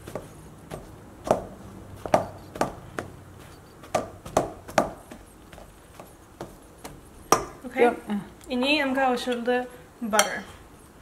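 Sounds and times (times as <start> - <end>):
potatoes squashing: 0.0 - 7.7.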